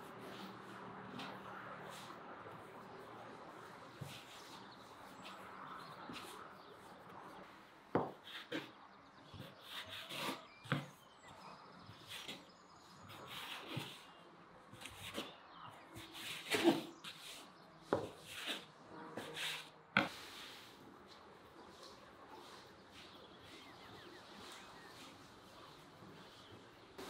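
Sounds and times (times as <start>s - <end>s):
hands rubbing dough: 0.0s - 8.7s.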